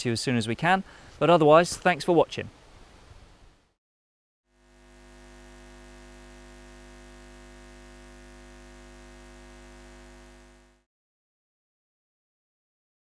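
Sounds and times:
low electric hum: 4.6s - 10.9s.

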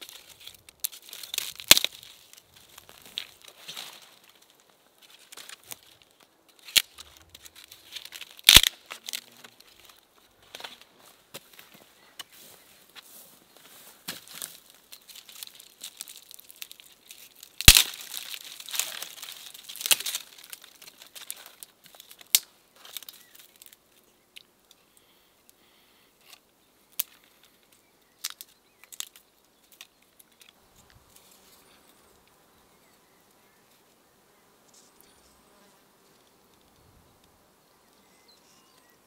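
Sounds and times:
dry twigs snapping: 0.0s - 11.6s, 14.1s - 24.8s, 26.2s - 30.6s.

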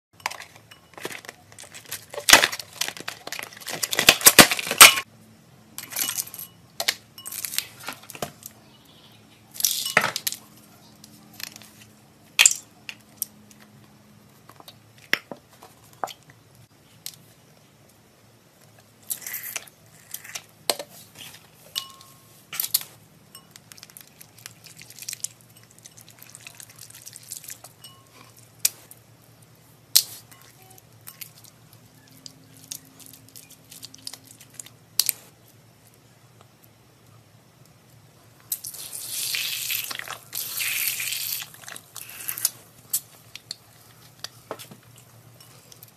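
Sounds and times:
plastic packaging crinkling: 0.3s - 5.0s
clinks against a glass bowl: 21.7s - 22.2s, 27.6s - 28.3s.

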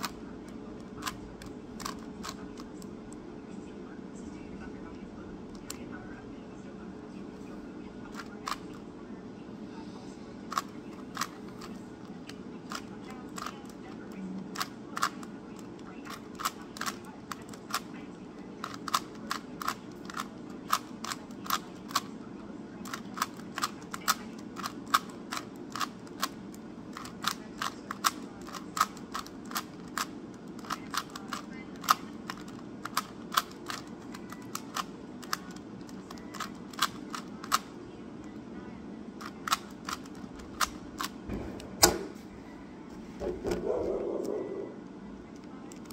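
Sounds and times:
plastic cube clicks: 27.0s - 37.7s.

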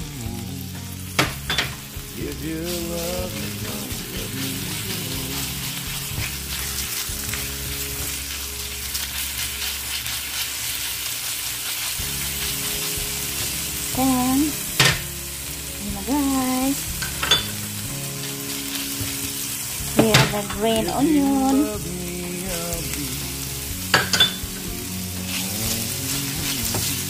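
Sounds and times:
garlic sizzling in oil: 0.0s - 27.0s
spatula stirring: 2.7s - 15.0s.

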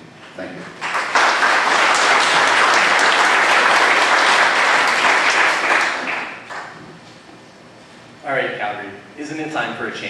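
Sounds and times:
audience applauding: 0.8s - 6.8s.

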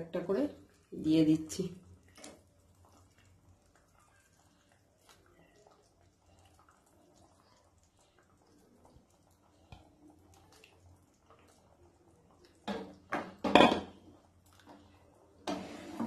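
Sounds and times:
curry bubbling: 0.0s - 16.0s
spatula sloshing and scraping: 14.5s - 16.0s.

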